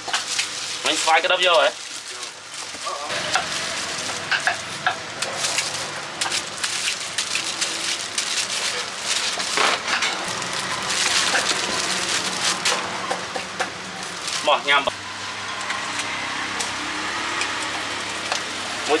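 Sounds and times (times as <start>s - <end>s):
plastic bag rustling: 0.0s - 14.8s
plastic glove and bag crinkling: 0.0s - 14.9s.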